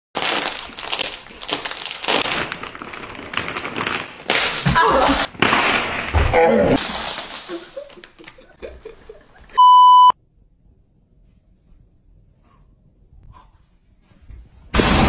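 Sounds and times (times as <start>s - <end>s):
snack bag crinkling: 0.2s - 4.8s, 6.8s - 8.3s
chips spilling: 0.2s - 6.2s, 6.8s - 7.9s
bag tearing open: 0.2s - 7.8s.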